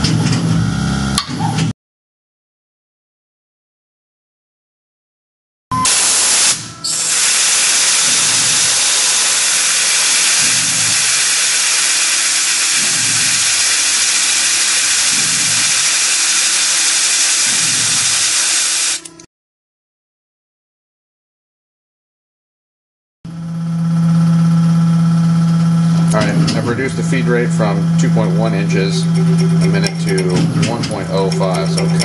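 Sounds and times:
loud steady hiss: 5.8s - 19.3s
mill drilling steel: 5.8s - 19.3s, 24.0s - 32.0s.

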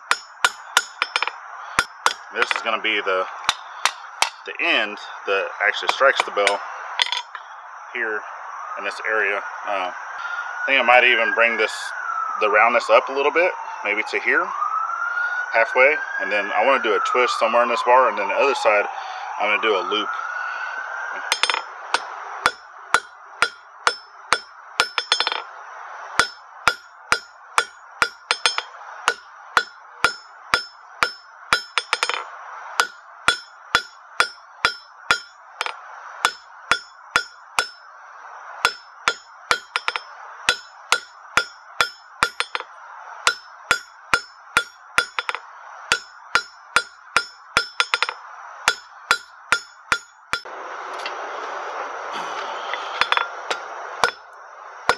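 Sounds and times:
hammer striking steel on anvil: 0.0s - 2.7s, 3.4s - 4.5s, 5.9s - 7.4s, 21.3s - 25.4s, 26.2s - 37.8s, 38.6s - 51.2s, 52.7s - 54.3s.

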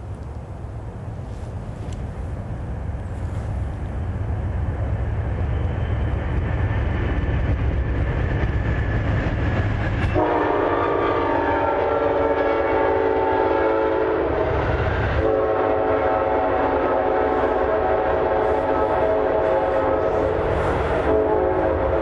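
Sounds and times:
train cars rumbling: 0.0s - 22.0s
train horn blowing: 10.0s - 22.0s.

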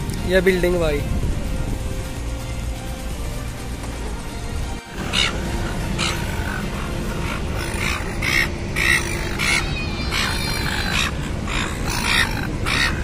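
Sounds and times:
steady low rumble: 0.0s - 13.0s
gulls squawking: 5.0s - 13.0s.

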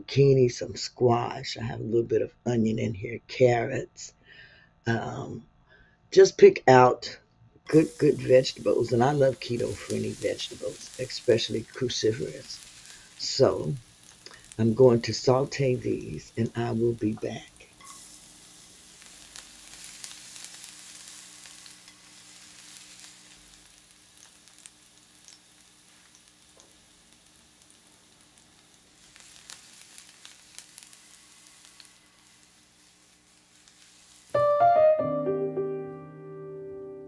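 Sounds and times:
faint steady hum: 0.1s - 34.4s
oil popping: 7.7s - 18.0s
vegetables sizzling in a pan: 7.7s - 34.5s
piano music: 34.3s - 37.0s.

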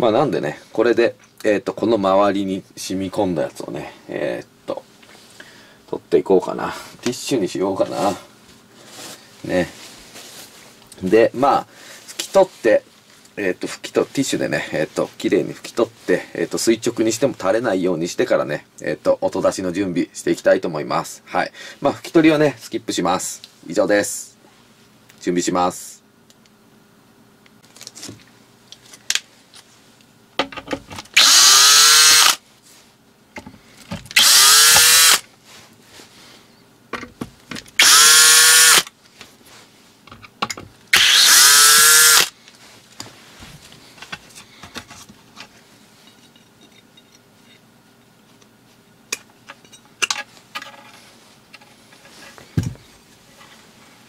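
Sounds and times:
power drill motor whining: 31.2s - 32.4s, 34.2s - 35.2s, 37.8s - 38.9s, 40.9s - 42.3s.

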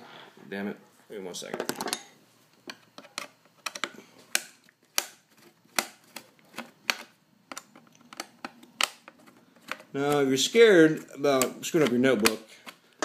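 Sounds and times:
hard plastic clicks and taps: 11.3s - 12.8s.

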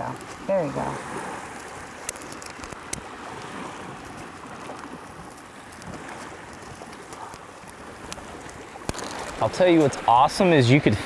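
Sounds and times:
surf washing: 0.0s - 11.0s
wind: 0.0s - 11.0s
faint clicks: 1.5s - 9.4s.

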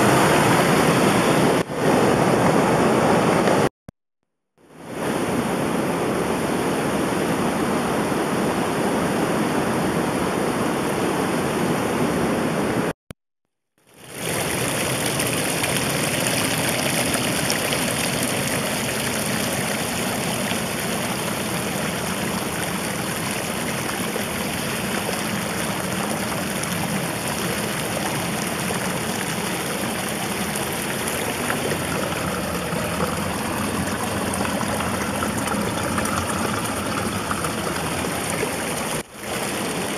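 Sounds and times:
flowing water rushing: 0.0s - 3.7s, 13.9s - 39.9s.

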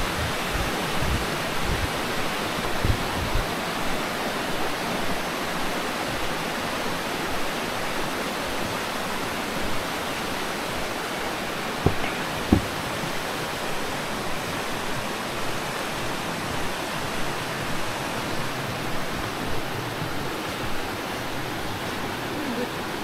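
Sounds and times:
stream rushing over stones: 0.0s - 23.0s
short knock: 11.8s - 13.2s.

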